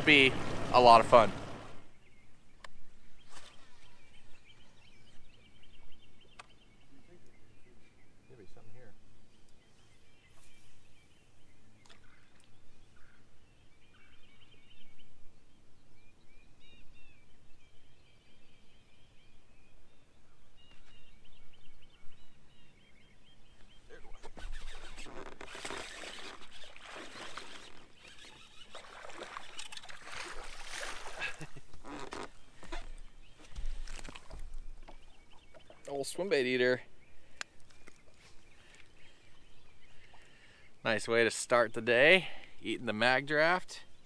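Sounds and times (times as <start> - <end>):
loud rustling and splashing: 0.0 - 1.8, 24.3 - 34.6
birds singing faintly: 0.0 - 44.0.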